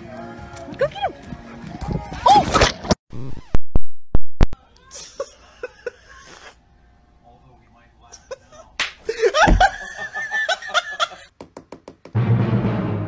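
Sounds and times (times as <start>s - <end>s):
low thump: 9.4s - 9.8s.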